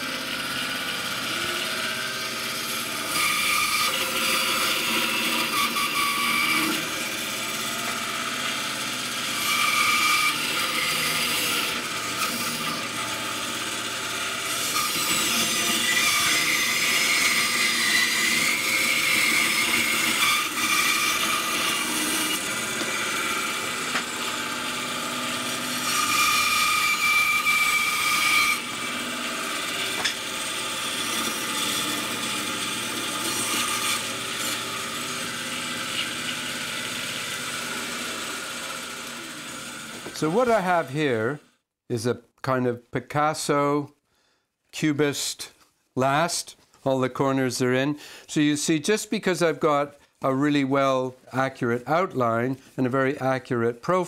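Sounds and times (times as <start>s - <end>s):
bandsaw cutting wood: 0.0s - 41.3s.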